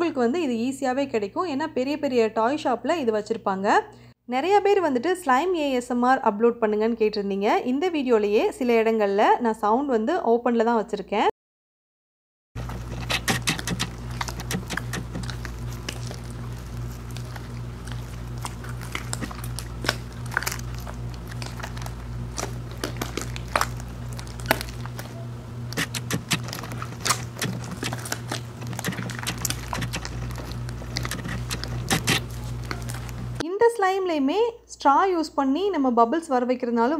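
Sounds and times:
steady low hum: 12.6s - 33.4s
slime popping and crackling: 12.8s - 33.4s.

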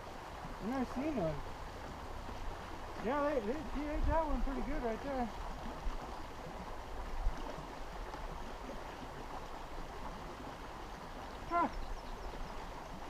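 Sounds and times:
creek water flowing: 0.0s - 13.0s
short voice: 11.5s - 11.8s.

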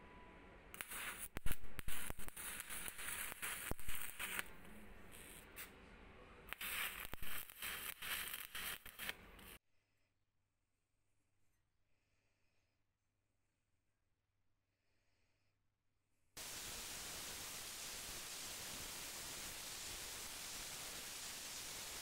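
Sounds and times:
crackling welding arc with pops: 0.8s - 5.7s, 6.5s - 9.6s, 16.4s - 22.0s.

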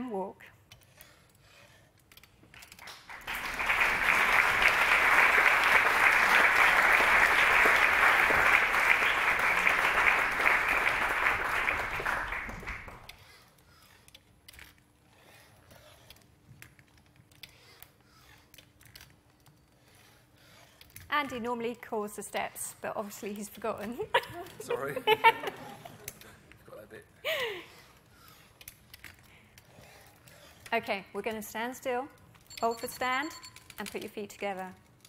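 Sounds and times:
audience applauding: 2.8s - 13.1s.

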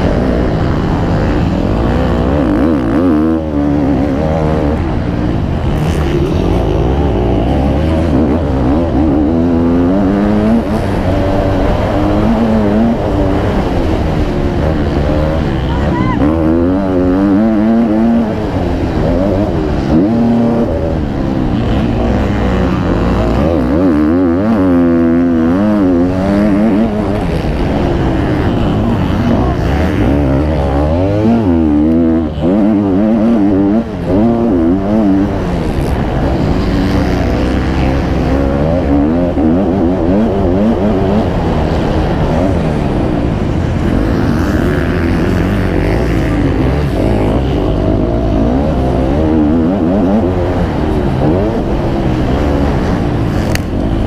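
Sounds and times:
motocross bikes revving: 0.0s - 54.0s.

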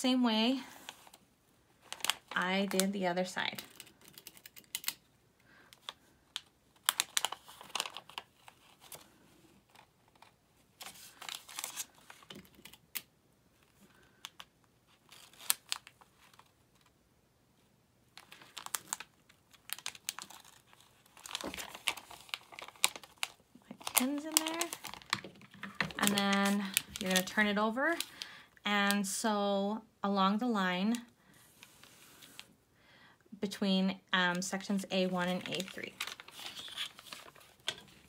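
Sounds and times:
paper rustling and crinkling: 5.8s - 12.8s, 18.2s - 28.2s, 35.0s - 38.0s.

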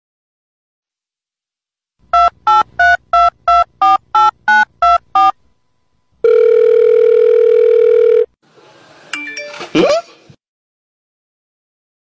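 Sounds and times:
telephone ringing tone: 6.2s - 8.3s.

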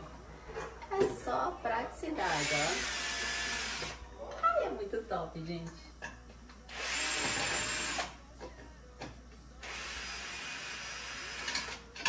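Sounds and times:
cordless screwdriver running: 2.2s - 4.0s, 6.7s - 8.1s.

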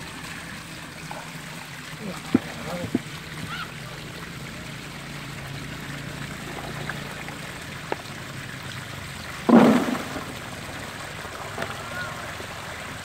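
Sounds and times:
water sloshing in a bucket: 0.0s - 13.0s
loud water splash: 9.4s - 13.0s.

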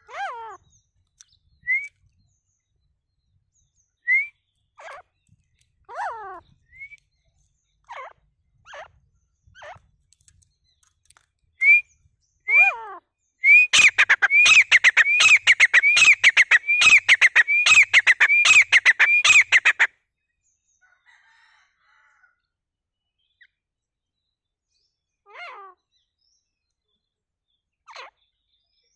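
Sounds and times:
francolin calling: 13.5s - 19.9s.

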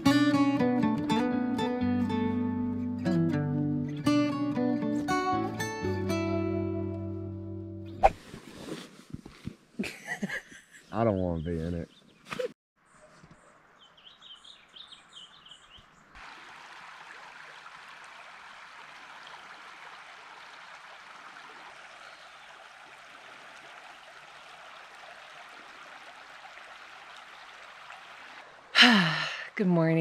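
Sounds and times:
small birds chirping: 10.8s - 16.2s
shallow river flowing: 15.9s - 29.7s.

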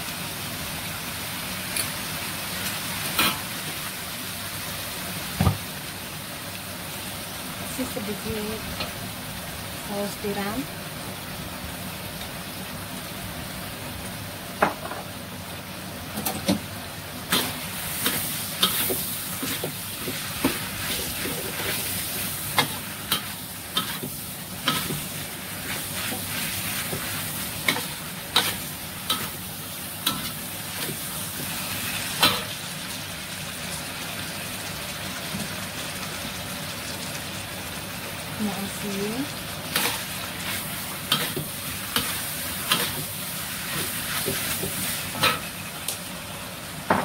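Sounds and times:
food sizzling in a wok: 0.0s - 47.0s
metal spatula scraping a wok: 39.7s - 45.5s.

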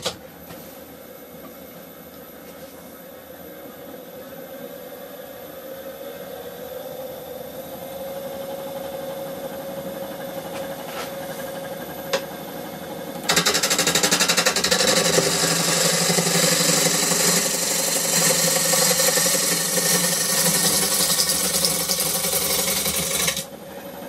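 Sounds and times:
wood lathe humming: 13.2s - 23.5s
gouge knocking on spinning wood: 13.3s - 23.4s.

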